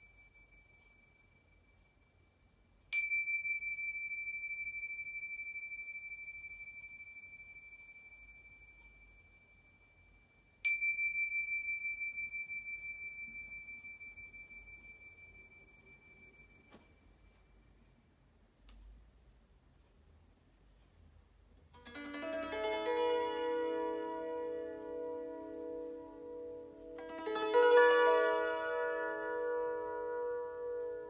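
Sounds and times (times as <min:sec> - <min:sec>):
small hand cymbals ringing: 0:00.0 - 0:17.5.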